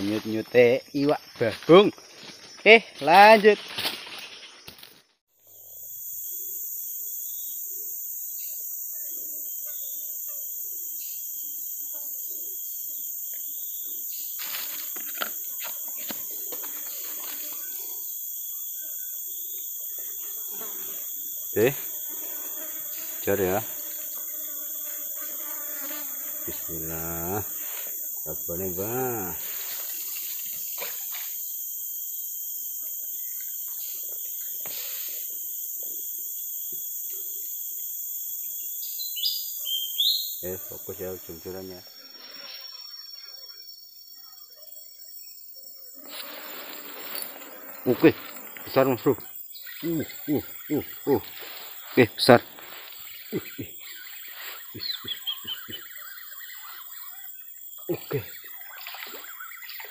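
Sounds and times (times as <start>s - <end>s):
forest insects droning: 0.0s - 59.9s.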